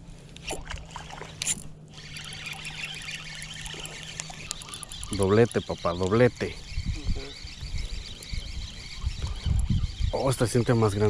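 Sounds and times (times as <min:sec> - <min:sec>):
fishing reel gears whirring: 0:00.4 - 0:11.0
reel sharp clicks: 0:01.2 - 0:10.0.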